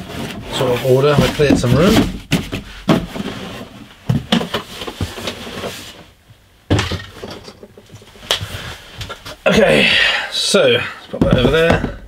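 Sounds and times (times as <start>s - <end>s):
cardboard scraping and rustling: 0.0s - 6.1s
cardboard boxes knocking: 1.1s - 3.3s, 11.2s - 12.0s.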